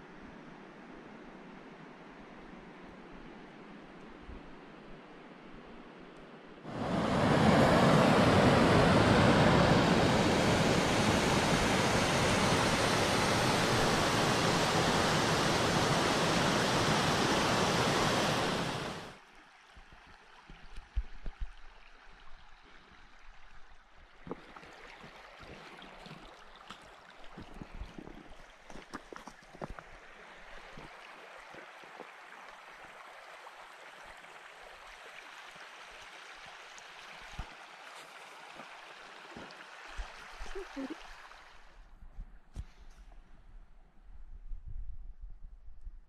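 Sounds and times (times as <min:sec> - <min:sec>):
creek water rushing over rocks: 0:10.4 - 0:41.7.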